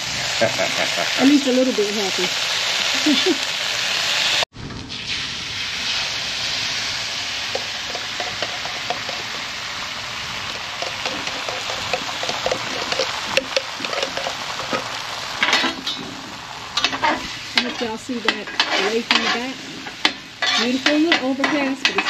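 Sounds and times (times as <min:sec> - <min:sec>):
bacon sizzling and popping: 0:00.0 - 0:22.0.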